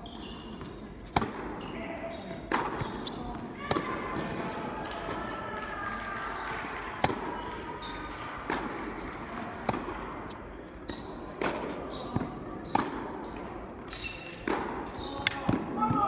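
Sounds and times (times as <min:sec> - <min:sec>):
shoe squeaks on court: 0:00.0 - 0:03.4, 0:07.3 - 0:08.1, 0:08.9 - 0:09.3, 0:10.8 - 0:11.2, 0:11.8 - 0:15.5
tennis ball struck and bouncing: 0:00.5 - 0:01.7, 0:02.5 - 0:15.7.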